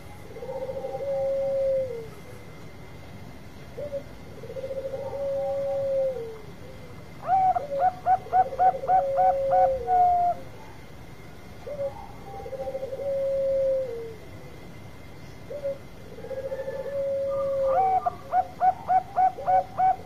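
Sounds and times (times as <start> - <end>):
doves cooing: 0.0 - 2.6, 3.7 - 10.9, 11.6 - 14.6, 15.4 - 20.0.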